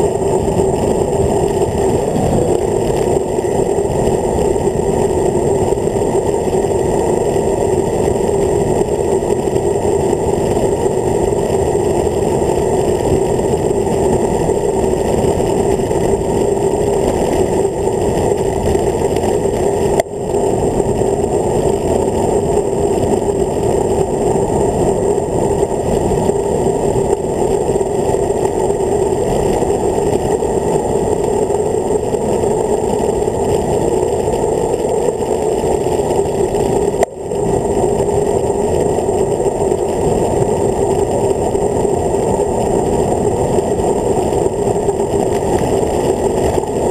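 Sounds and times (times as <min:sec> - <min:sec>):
wind rushing over microphone: 0:00.0 - 0:46.9.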